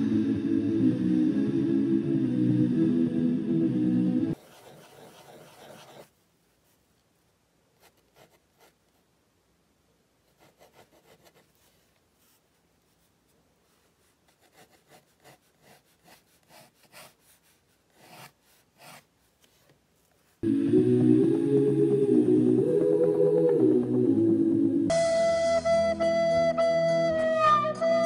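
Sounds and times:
pen scratching on paper: 4.4 - 6.1, 10.4 - 11.6, 14.3 - 19.1.

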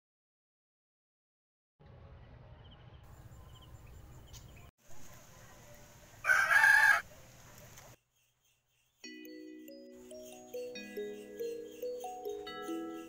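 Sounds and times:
rooster crowing: 6.2 - 7.1.

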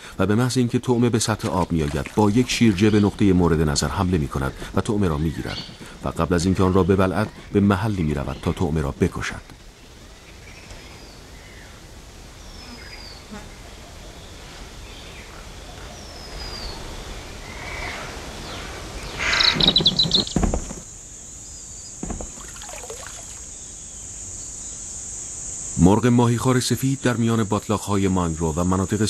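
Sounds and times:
insects buzzing: 0.0 - 29.0
harsh rapid bird calls: 1.5 - 8.8, 17.4 - 20.9
thin falling bird whistles: 19.0 - 20.4.

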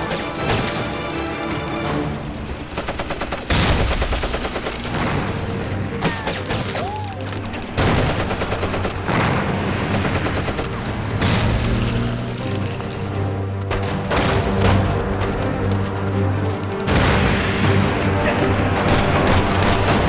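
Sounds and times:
heavy explosions: 7.8 - 12.1, 16.9 - 20.0.

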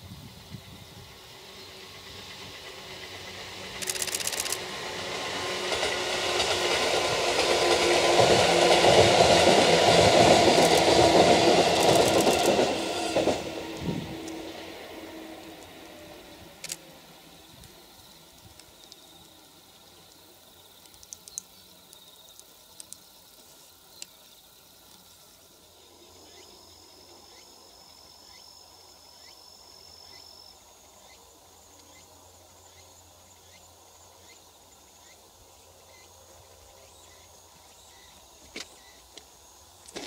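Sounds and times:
insects trilling: 0.0 - 40.0
short insect chirps: 0.2 - 5.4, 11.6 - 40.0
sharp clicks: 3.8 - 4.6, 10.6 - 10.9, 11.8 - 12.6, 16.6 - 16.8.

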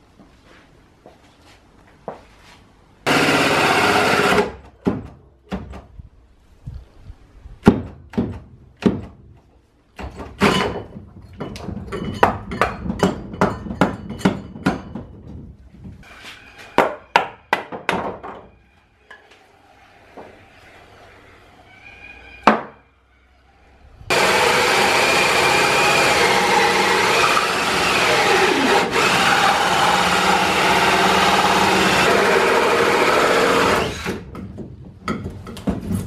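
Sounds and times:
sharp knocks and thuds: 4.7 - 6.0, 7.6 - 9.4, 34.3 - 36.0.

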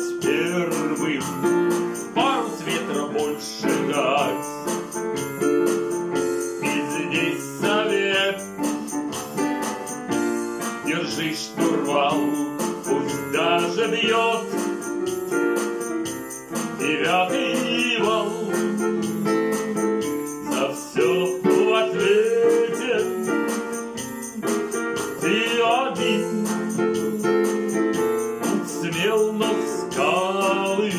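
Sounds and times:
man singing with vibrato: 0.0 - 4.9, 6.6 - 8.9, 10.8 - 15.6, 16.6 - 30.9
digital piano chords: 0.0 - 30.9
light percussion beat: 0.0 - 30.9.

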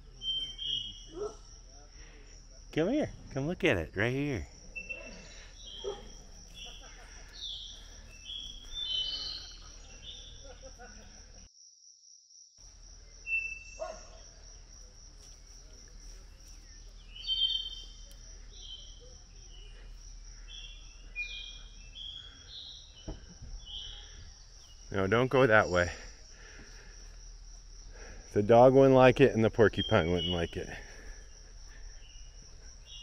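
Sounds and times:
high-pitched insect trill: 0.0 - 33.0
short bird chirps: 7.4 - 10.4, 17.0 - 19.0.

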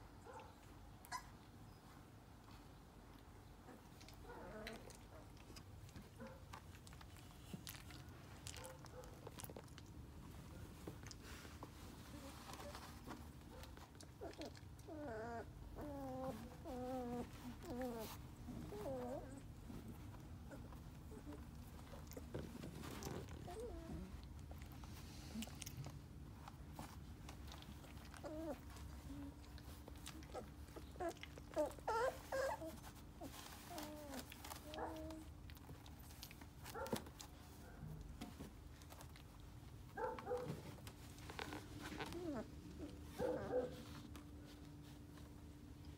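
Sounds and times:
puppy whining: 0.2 - 2.6, 3.4 - 45.9
puppies whimpering and yelping: 14.1 - 24.2, 27.5 - 35.3, 41.8 - 43.5.

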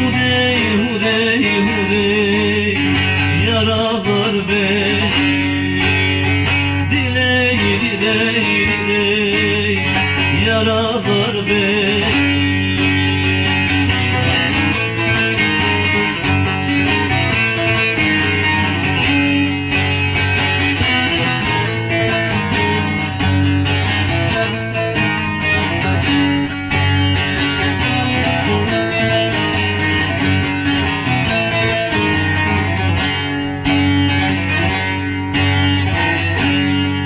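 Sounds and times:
man singing: 0.0 - 17.2
long-necked lute folk melody: 0.0 - 37.0.

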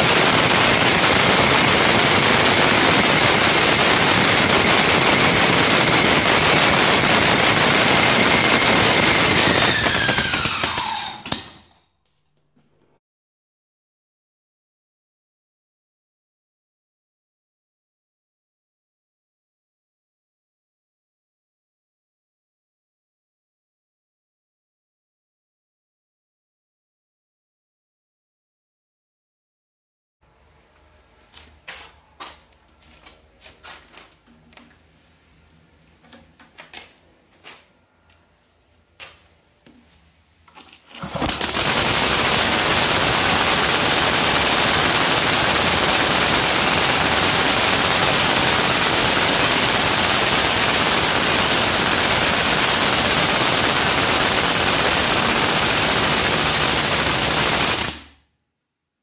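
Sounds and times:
radial engine running: 0.0 - 11.2, 41.0 - 58.0.

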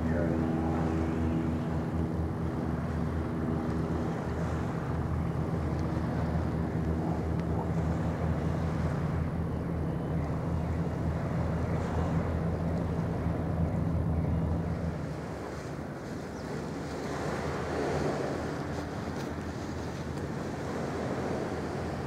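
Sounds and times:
outdoor noise: 0.0 - 22.0
ship diesel engines droning: 0.0 - 22.0.

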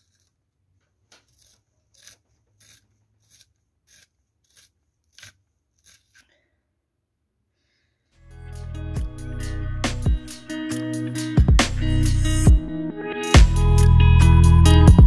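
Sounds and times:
pencil sharpener scraping: 0.0 - 6.4, 9.9 - 11.3.

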